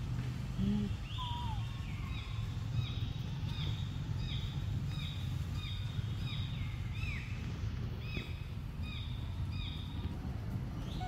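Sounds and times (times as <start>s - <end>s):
low outdoor rumble: 0.0s - 11.0s
lower falling call: 0.6s - 2.1s.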